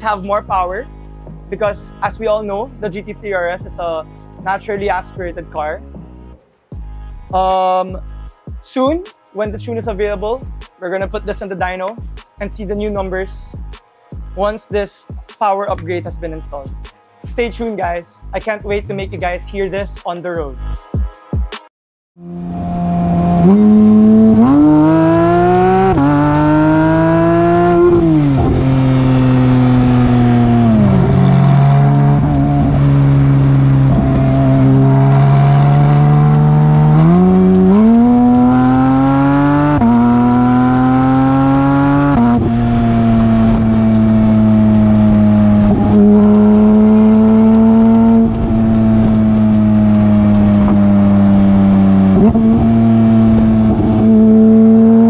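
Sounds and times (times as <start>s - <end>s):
sports car engine accelerating: 22.2s - 55.0s.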